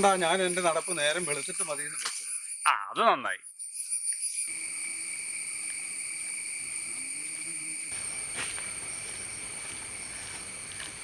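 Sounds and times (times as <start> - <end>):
insects droning: 0.0 - 11.0.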